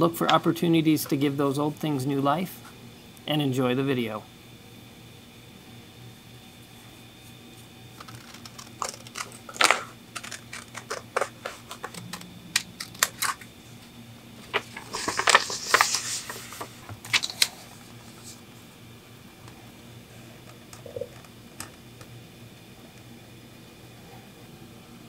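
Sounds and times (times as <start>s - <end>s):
paper rustling: 7.9s - 12.1s, 14.4s - 18.4s.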